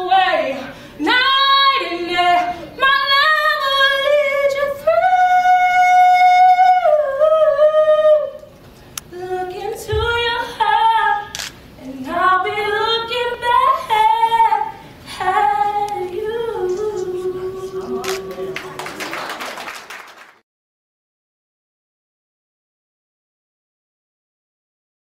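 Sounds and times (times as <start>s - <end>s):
person singing unaccompanied: 11.8s - 18.8s.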